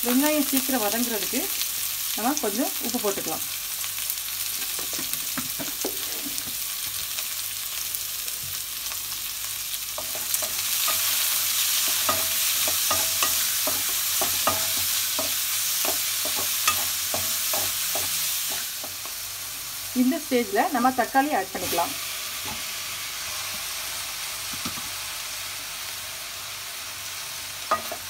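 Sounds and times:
onions sizzling in oil: 0.0s - 28.0s
spatula scraping pan: 10.0s - 19.0s.

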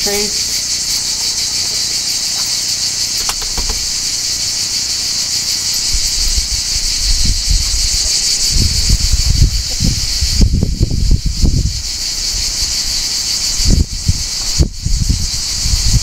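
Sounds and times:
insect chorus drone: 0.0s - 16.0s
sharp clicks: 3.2s - 4.0s
low rumbling thumps: 6.0s - 12.5s.

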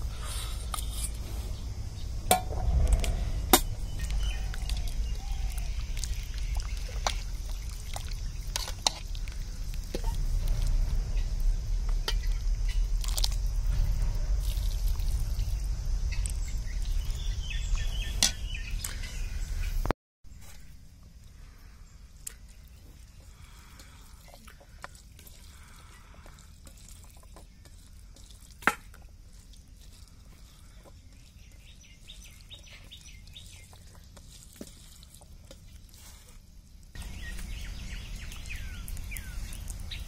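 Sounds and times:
low rumble: 0.0s - 19.9s.

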